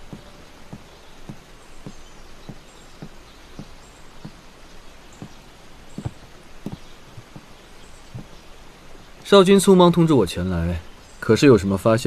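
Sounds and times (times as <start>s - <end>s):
footsteps walking: 0.0s - 8.4s.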